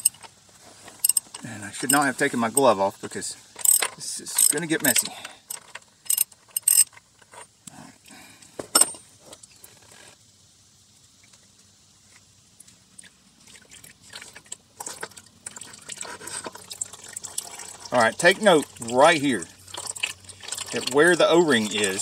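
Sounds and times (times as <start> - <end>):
scraping handling noises: 0.0 - 7.8, 14.8 - 18.3
ratchet clicking: 0.9 - 2.1, 3.6 - 7.4.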